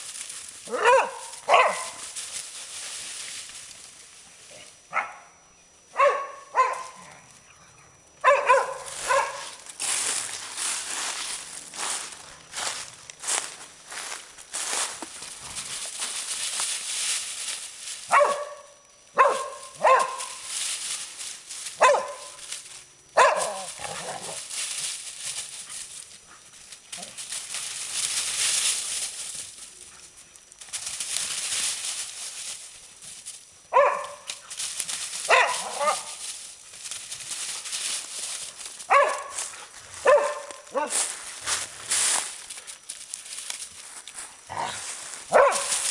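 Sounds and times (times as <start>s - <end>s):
dry leaves rustling underfoot: 0.0s - 4.6s, 8.0s - 45.9s
dogs barking: 0.7s - 2.0s, 4.9s - 5.3s, 5.9s - 7.1s, 8.2s - 9.6s, 18.1s - 20.4s, 21.8s - 22.4s, 23.2s - 24.4s, 33.7s - 34.4s, 35.3s - 36.2s, 38.9s - 41.1s, 44.6s - 45.8s.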